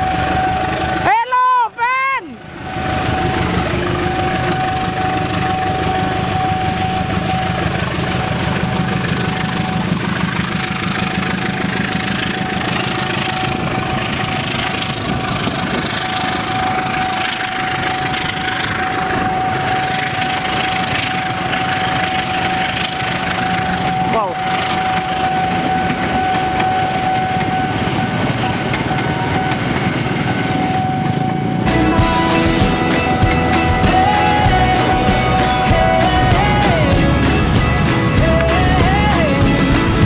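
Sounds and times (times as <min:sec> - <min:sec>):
high-pitched whine: 0:00.0 - 0:01.2, 0:02.4 - 0:40.0
diesel locomotive engine passing: 0:00.0 - 0:40.0
train wheels on rails: 0:00.0 - 0:40.0.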